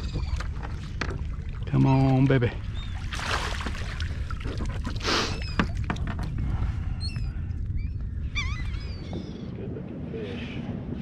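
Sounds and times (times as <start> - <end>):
seabirds calling: 0.0 - 9.8
steady low rumble: 5.7 - 11.0.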